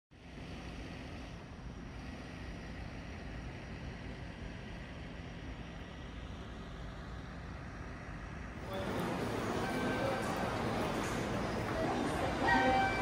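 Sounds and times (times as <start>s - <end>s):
faint high whine: 0.2s - 13.0s.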